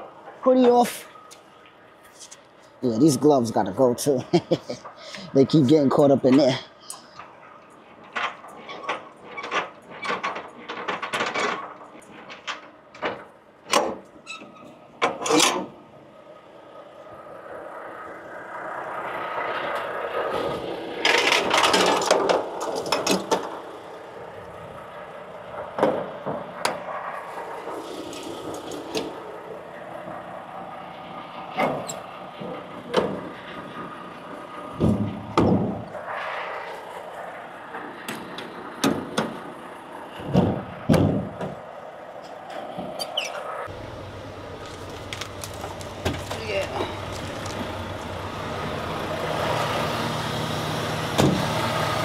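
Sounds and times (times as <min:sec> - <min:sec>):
metal clanks and knocks: 0:08.0 - 0:14.1, 0:34.7 - 0:35.9
truck engine running: 0:15.7 - 0:52.0
air rushing: 0:34.3 - 0:38.8.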